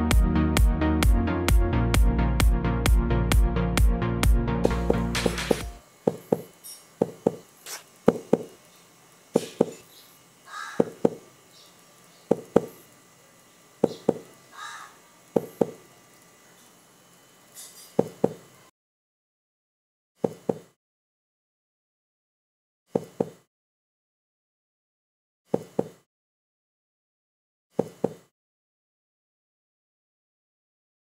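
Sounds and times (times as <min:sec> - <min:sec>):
sharp knocks in pairs: 0:04.7 - 0:07.4, 0:09.4 - 0:09.8, 0:10.8 - 0:11.2, 0:22.9 - 0:23.4, 0:27.8 - 0:28.3.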